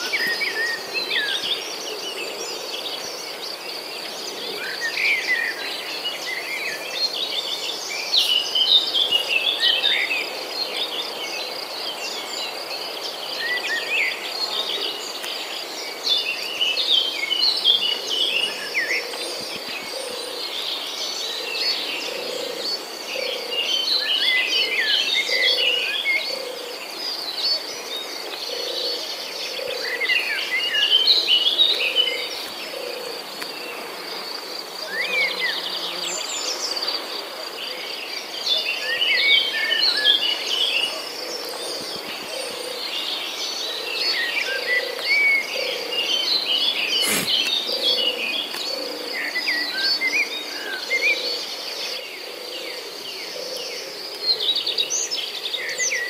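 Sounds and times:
bird chirps and calls: 0:44.2 - 0:48.6.

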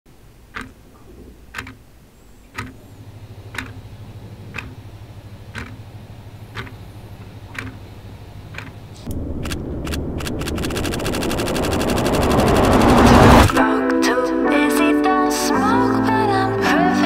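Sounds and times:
wall clock ticking: 0:00.4 - 0:09.0.

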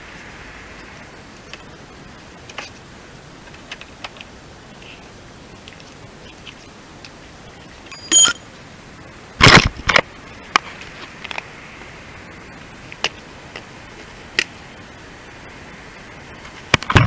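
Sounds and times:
steady hiss: 0:00.0 - 0:17.0
metallic clink: 0:07.9 - 0:08.4.

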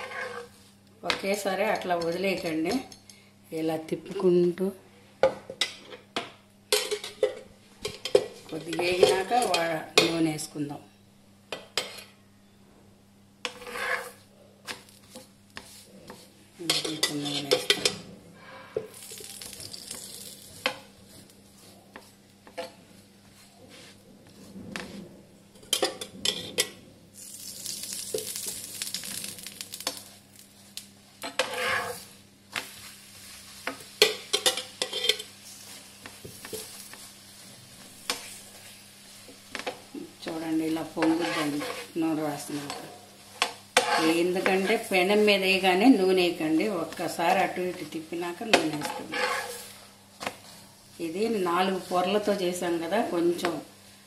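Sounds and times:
clattering and scraping on pan: 0:00.0 - 0:00.5, 0:13.5 - 0:14.2, 0:25.6 - 0:26.8, 0:31.2 - 0:32.0, 0:33.6 - 0:35.3, 0:41.0 - 0:44.9, 0:48.5 - 0:49.7
oil sizzling on a pan: 0:18.8 - 0:21.3, 0:27.1 - 0:52.4.

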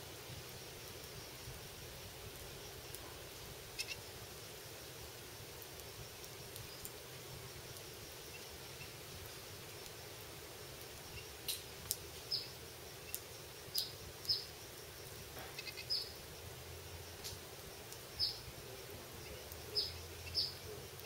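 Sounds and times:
finches chirping: 0:15.5 - 0:16.2, 0:19.2 - 0:21.0.

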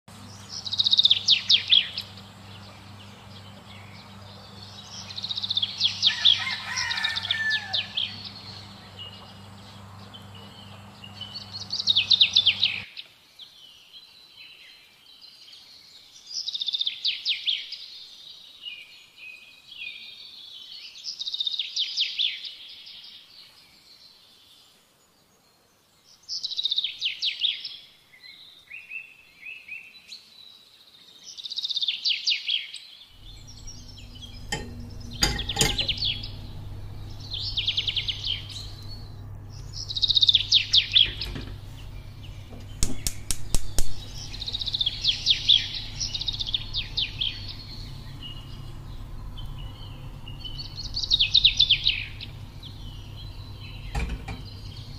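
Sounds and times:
low steady hum: 0:00.1 - 0:12.9, 0:33.1 - 0:54.9
songbird chirping: 0:00.1 - 0:54.9.

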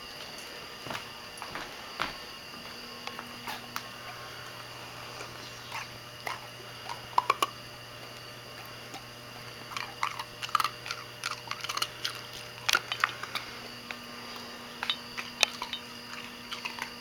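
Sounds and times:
dog crunching ice cube: 0:03.4 - 0:17.0.

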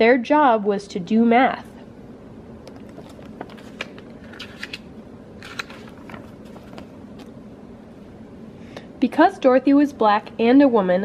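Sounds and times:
paper page rustling: 0:02.7 - 0:07.4.

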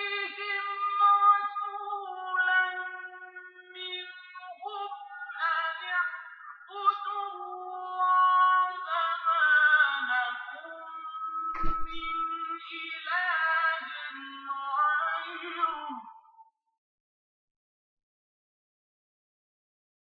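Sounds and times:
person chanting recitation: 0:00.0 - 0:16.2
short thump: 0:11.6 - 0:12.2.

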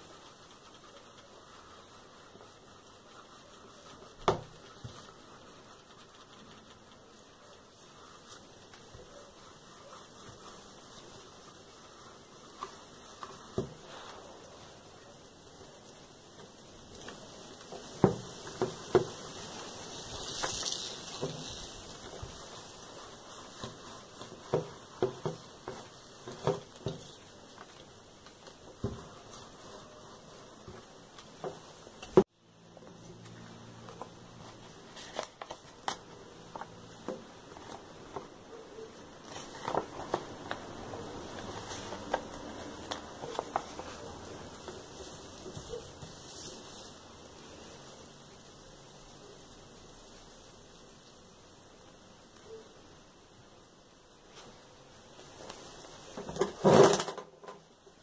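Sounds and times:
iron sliding over paper: 0:00.0 - 0:15.2, 0:15.9 - 0:32.3, 0:33.9 - 0:47.0.

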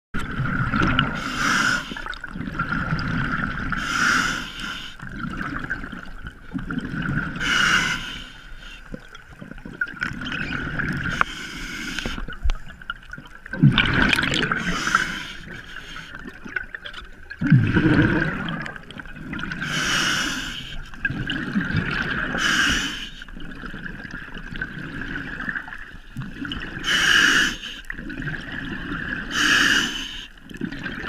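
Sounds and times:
bubbling of exhaled air: 0:00.2 - 0:31.0
regulator hiss on inhale: 0:01.2 - 0:02.1, 0:03.8 - 0:05.0, 0:07.4 - 0:08.9, 0:11.1 - 0:12.3, 0:14.6 - 0:16.2, 0:19.6 - 0:20.9, 0:22.4 - 0:23.3, 0:26.8 - 0:27.9, 0:29.3 - 0:30.4.

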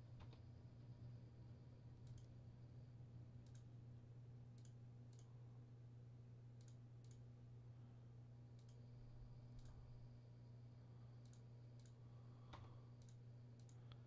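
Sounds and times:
low steady hum: 0:00.0 - 0:14.0
computer mouse clicks: 0:02.0 - 0:02.3, 0:03.4 - 0:03.7, 0:04.6 - 0:05.3, 0:06.6 - 0:07.2, 0:08.6 - 0:08.8, 0:09.5 - 0:09.8, 0:11.2 - 0:14.0.

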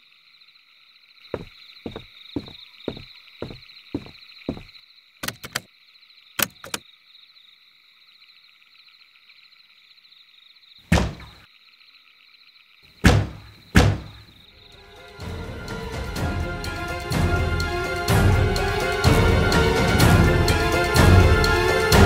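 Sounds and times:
night insects chirring: 0:00.0 - 0:22.0
fist thumping on television: 0:10.9 - 0:11.4, 0:13.0 - 0:14.2.

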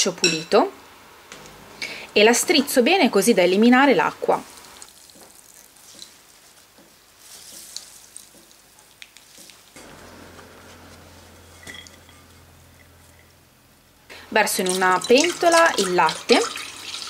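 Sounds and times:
cloth rustling: 0:04.5 - 0:13.2
low steady hum: 0:09.5 - 0:16.7
water trickling into a bowl: 0:14.5 - 0:17.0.

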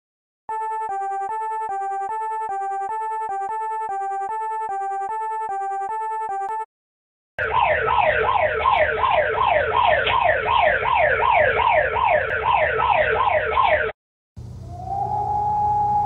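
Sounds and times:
siren tone sweeping down: 0:07.4 - 0:13.9, 0:14.6 - 0:16.0
steady alarm tone: 0:07.4 - 0:13.9.

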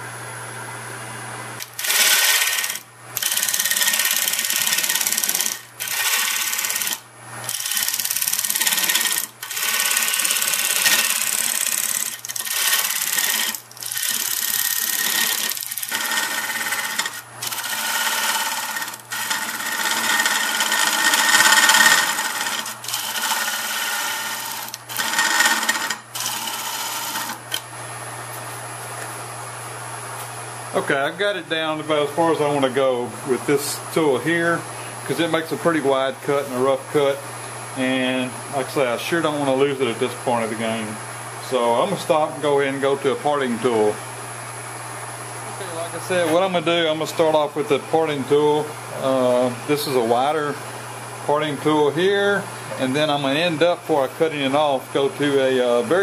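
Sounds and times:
tool scraping spinning wood: 0:01.6 - 0:27.6
wood lathe humming: 0:01.6 - 0:27.7.

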